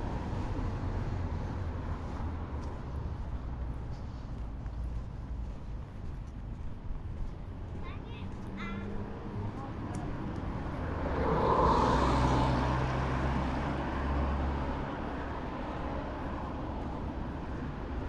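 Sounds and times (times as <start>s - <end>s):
street noise: 0.0s - 18.0s
vehicle engine hum: 0.0s - 18.0s
rushing tyre noise: 6.8s - 18.0s.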